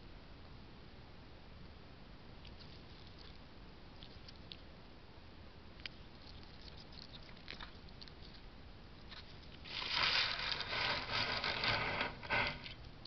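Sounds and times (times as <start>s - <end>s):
spines scraping against metal frame: 9.6s - 12.8s.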